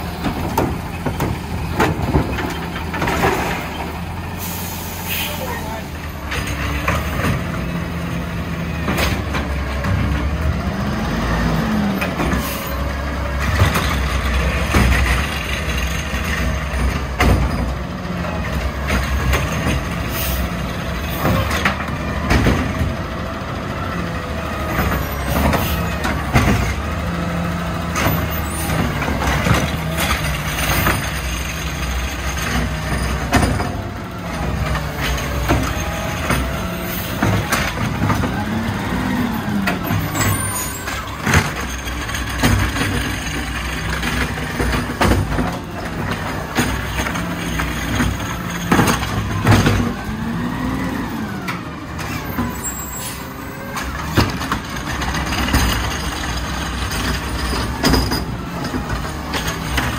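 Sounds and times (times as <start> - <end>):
carts knocking and banging: 0.0 - 4.2, 5.4 - 59.9
diesel engine running: 0.0 - 59.9
air brake hissing: 4.3 - 5.5, 20.1 - 20.5, 52.7 - 53.4.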